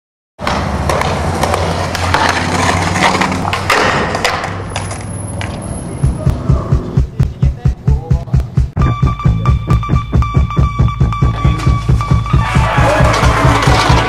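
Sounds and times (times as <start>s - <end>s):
skateboard clicks and knocks: 0.4s - 5.6s, 12.8s - 14.0s
skateboard wheels rolling on concrete: 0.4s - 6.6s, 11.3s - 14.0s
song with thumping beat: 6.0s - 14.0s.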